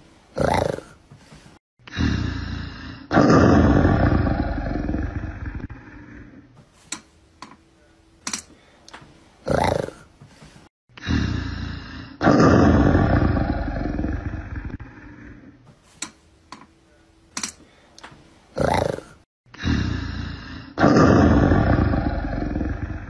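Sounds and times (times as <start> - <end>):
big cat roar: 0.4 - 1.0, 1.9 - 6.3, 9.5 - 10.0, 11.0 - 15.4, 18.6 - 23.0.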